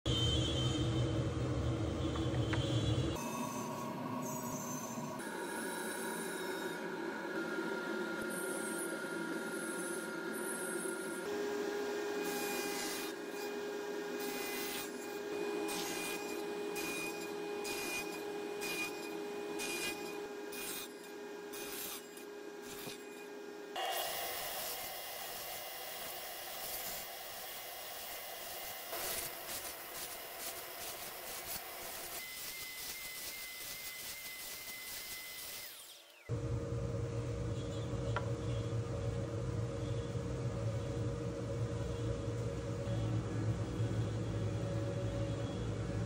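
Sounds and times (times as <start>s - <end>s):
table saw cutting wood: 3.2s - 36.4s
miter saw cutting wood: 8.3s - 36.4s.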